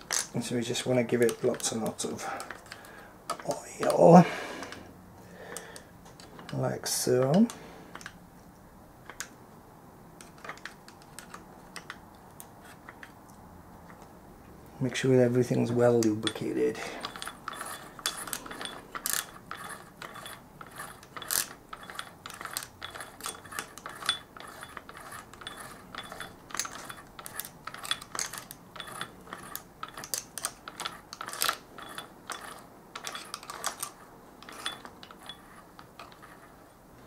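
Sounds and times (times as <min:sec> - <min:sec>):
metallic ticks of gears: 0:15.9 - 0:36.5.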